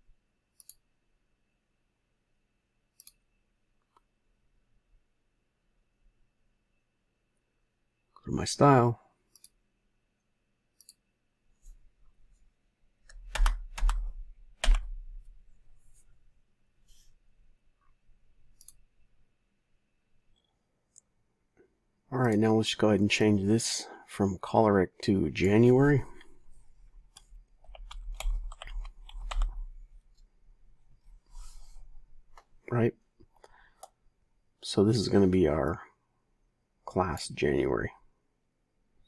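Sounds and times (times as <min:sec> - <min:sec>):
keyboard key presses: 0:13.0 - 0:15.0, 0:27.1 - 0:29.7.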